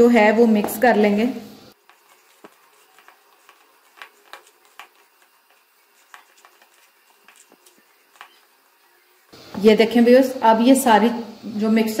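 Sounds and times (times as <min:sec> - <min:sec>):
hand mixing food in bowl: 0:01.7 - 0:09.6.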